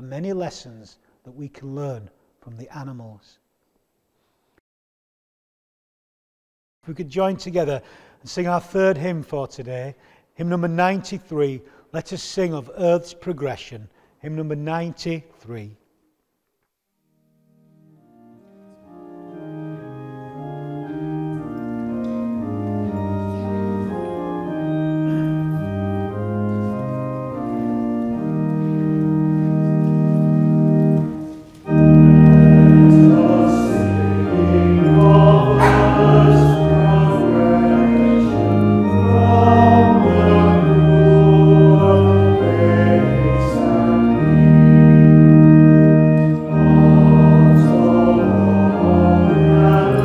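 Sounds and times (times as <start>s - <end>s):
pipe organ playing a hymn: 17.2s - 50.0s
congregation singing: 18.5s - 50.0s.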